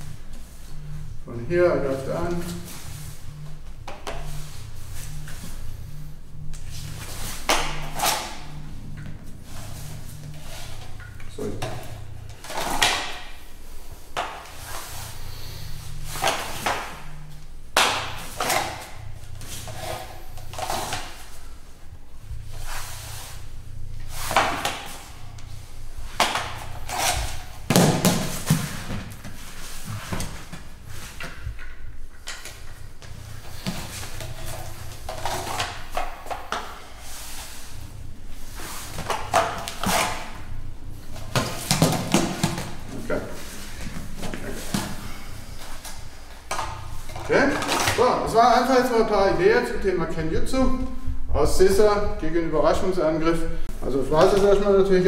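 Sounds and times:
low steady hum: 0.0 - 55.0
feet shifting on mats: 32.9 - 35.1.

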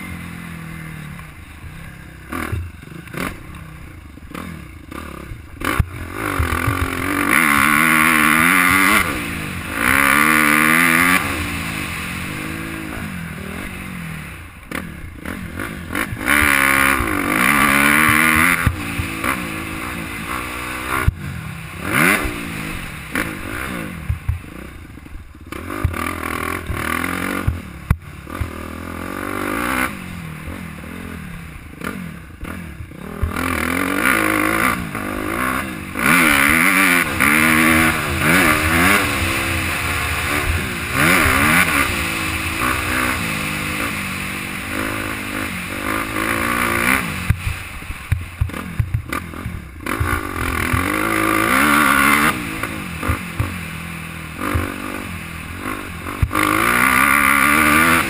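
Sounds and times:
dirt bike engine revving: 0.0 - 58.0.

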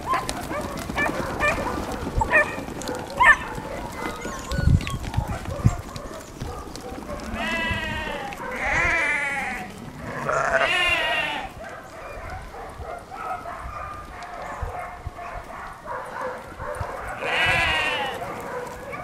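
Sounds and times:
sheep bleating: 7.2 - 11.6, 17.2 - 18.2.

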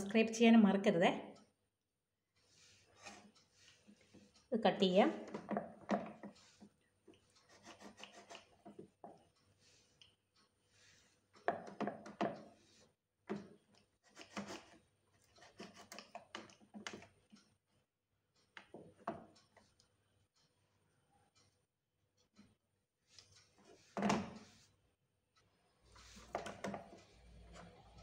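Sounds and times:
knife scraping and tapping on board: 2.5 - 4.3, 5.2 - 9.2, 10.9 - 17.0, 26.0 - 27.0.

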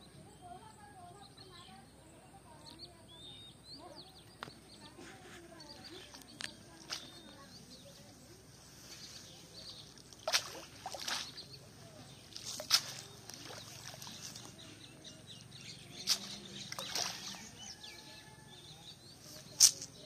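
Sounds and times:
birds chirping: 0.0 - 20.0
water splashing and sloshing: 5.9 - 8.0, 8.9 - 14.8, 15.8 - 17.7.

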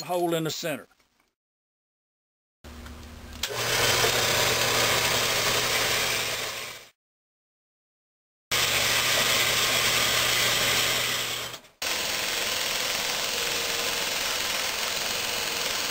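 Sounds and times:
power hacksaw cutting steel: 3.4 - 6.9, 8.5 - 15.9
shop machine running: 3.4 - 6.9, 8.5 - 15.9.

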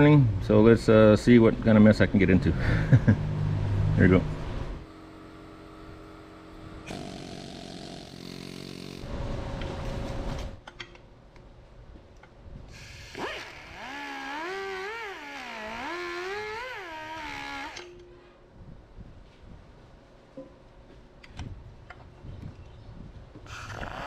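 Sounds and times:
die grinder whining: 6.8 - 9.1, 12.8 - 18.0.

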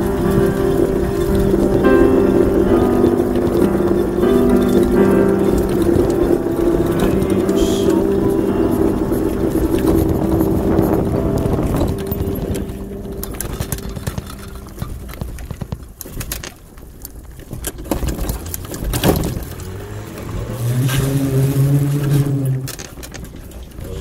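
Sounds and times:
deeper steady hum: 0.0 - 16.0
steady hum: 0.0 - 16.0
road rolling noise: 0.0 - 24.0.

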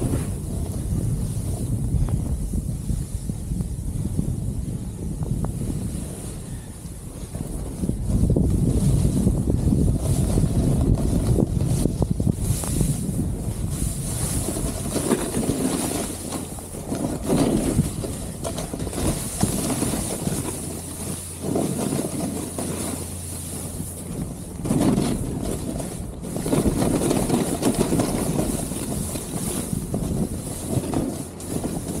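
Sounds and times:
snowboard scraping on snow: 0.0 - 32.0
wind buffeting microphone: 0.0 - 32.0.

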